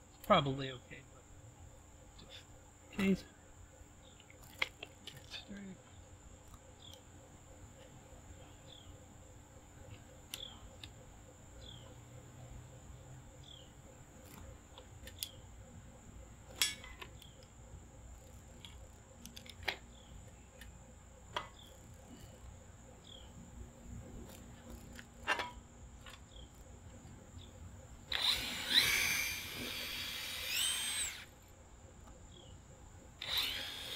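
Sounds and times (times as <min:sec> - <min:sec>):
high insect drone: 0:00.0 - 0:33.9
bird chirping: 0:05.3 - 0:07.1, 0:08.3 - 0:09.0, 0:09.8 - 0:12.2, 0:13.3 - 0:14.4, 0:23.0 - 0:23.4.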